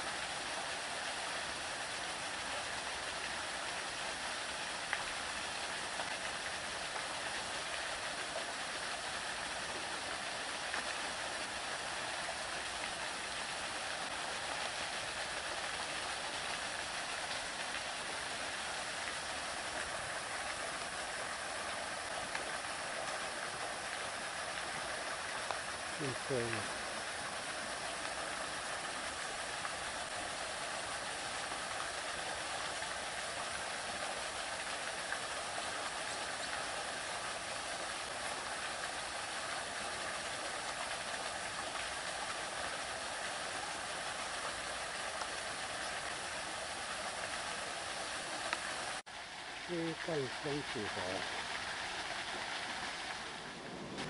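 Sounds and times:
water rushing: 0.0s - 54.0s
faint ticks: 4.9s - 5.1s.

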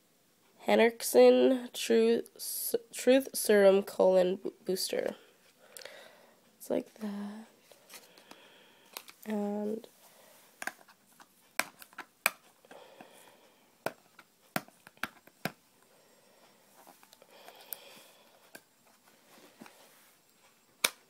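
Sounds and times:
packaging clicks and taps: 8.2s - 9.3s, 10.6s - 12.8s, 13.8s - 15.6s, 20.8s - 21.0s.

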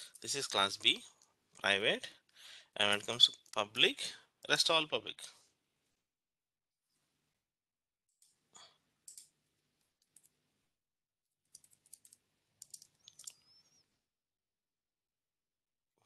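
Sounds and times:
faint keyboard typing: 9.0s - 10.4s, 11.5s - 13.8s.

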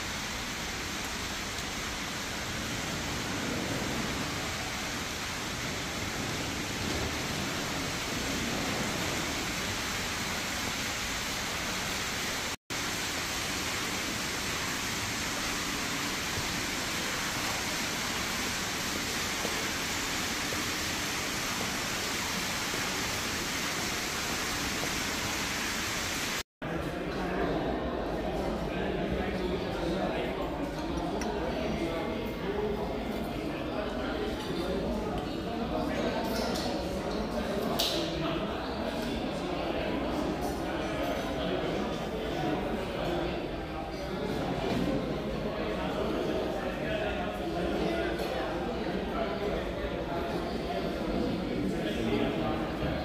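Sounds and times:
falling water rushing: 0.0s - 26.4s.

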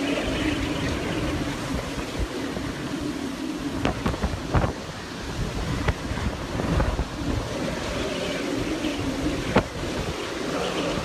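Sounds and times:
driving rain: 0.0s - 11.0s
strong wind rushing: 0.0s - 11.0s
wind buffeting microphone: 0.0s - 11.0s.

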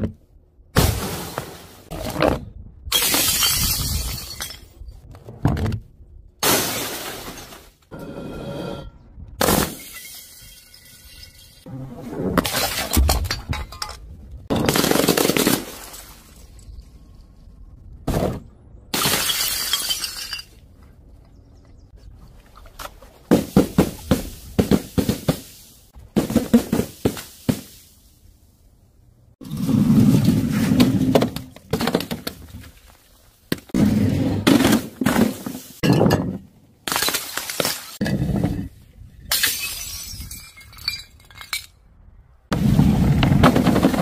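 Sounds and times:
glass breaking: 19.0s - 20.5s.

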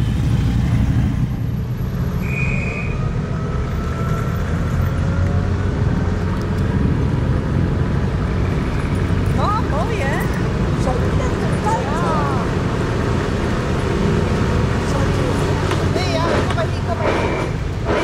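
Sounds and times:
military vehicle engines: 0.0s - 18.0s
high squeal: 2.1s - 4.8s.

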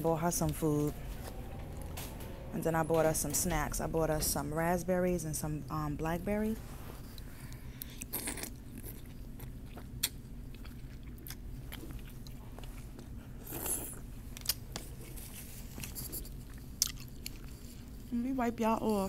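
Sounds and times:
steady low hum: 0.0s - 18.8s
close-up chewing: 7.0s - 18.0s.

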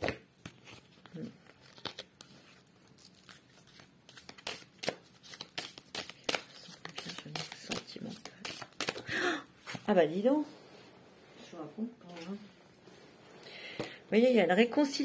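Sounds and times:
cards shuffling: 0.0s - 9.9s.

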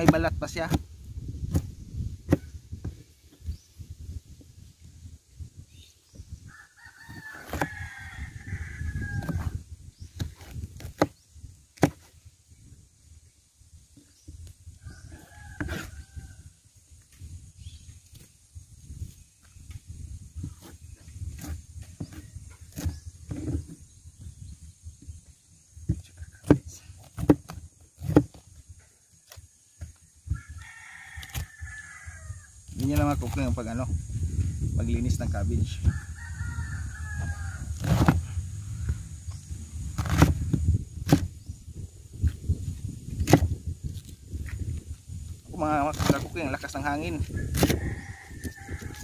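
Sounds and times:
wind rumble on microphone: 0.0s - 49.0s
rooster crowing: 6.5s - 9.6s, 14.8s - 16.6s, 30.3s - 32.6s, 35.8s - 37.8s, 47.3s - 49.0s.

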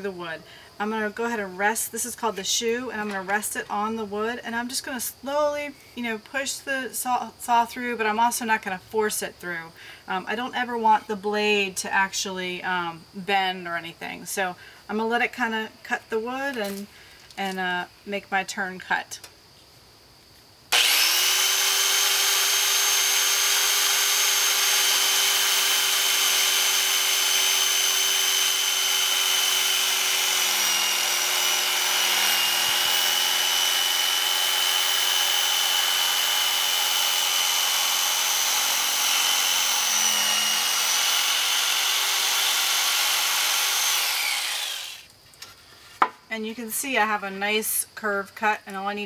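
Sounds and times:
jigsaw cutting wood: 20.7s - 45.1s.

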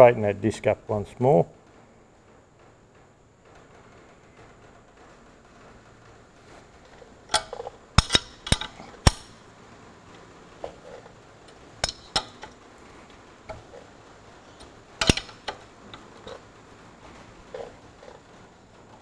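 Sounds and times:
ring spanners clinking on metal: 7.3s - 9.4s, 10.6s - 12.6s, 14.6s - 16.5s.

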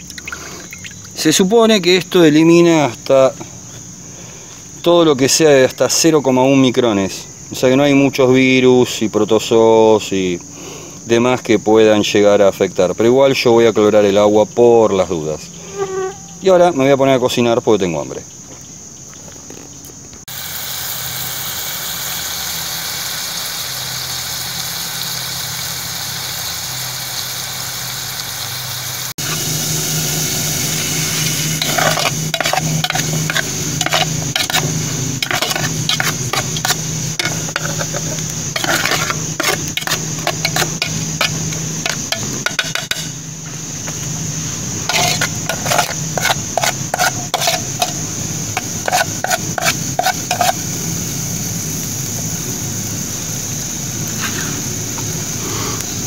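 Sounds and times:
high insect buzz: 0.0s - 4.9s, 14.3s - 17.2s, 18.2s - 56.0s
knife clicking against metal pot: 31.6s - 43.2s.

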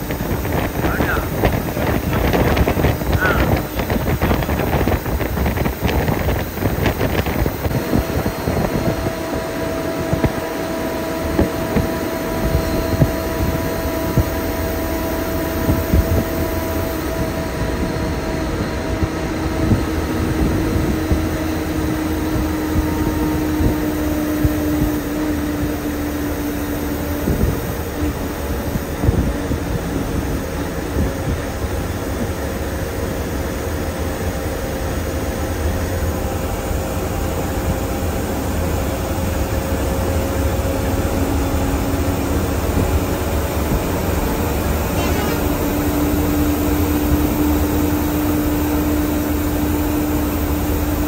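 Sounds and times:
faint whine dropping in pitch: 0.0s - 30.3s, 40.9s - 50.3s
air conditioning hum: 0.0s - 51.0s
bus engine and road rumble: 0.0s - 51.0s.

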